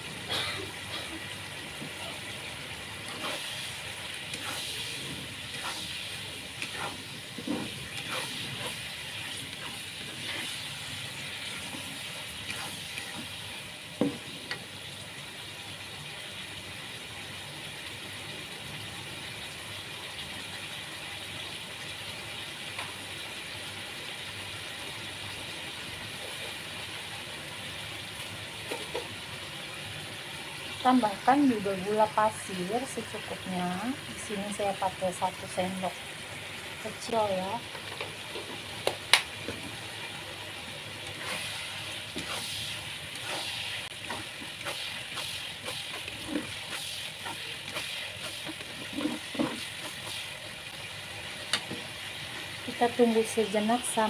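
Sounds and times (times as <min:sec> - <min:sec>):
food sizzling in a pan: 0:00.0 - 0:54.0
utensil scraping and knocking pan: 0:44.0 - 0:50.0.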